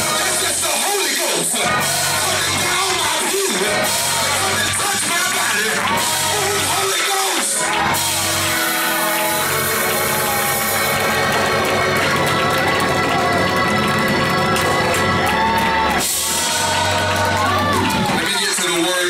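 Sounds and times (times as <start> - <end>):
man singing into a microphone: 0.0 - 7.4
loud praise music: 0.0 - 19.0.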